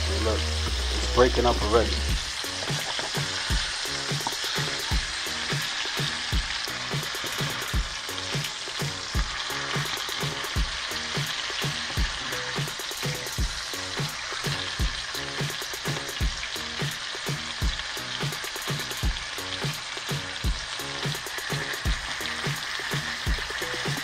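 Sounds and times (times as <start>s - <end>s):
faint low regular beat: 0.0s - 8.1s, 20.2s - 24.0s
fish sizzling in hot oil: 0.0s - 24.0s.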